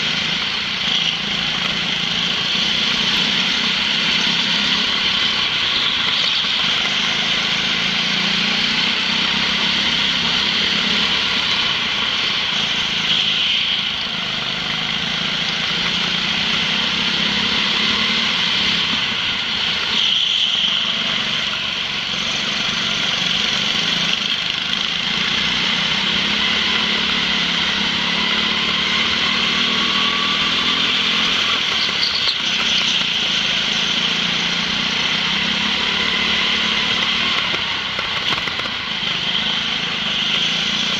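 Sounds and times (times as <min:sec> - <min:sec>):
go-kart engines high-pitched drone: 0:00.0 - 0:40.9.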